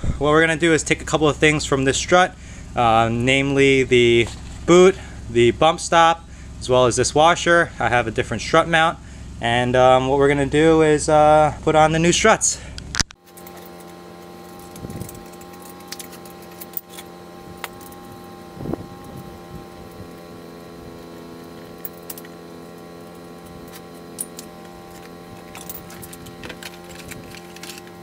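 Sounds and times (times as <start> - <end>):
steady low hum: 0.0 - 28.0
wrench clinking on metal: 13.3 - 18.1, 21.5 - 28.0.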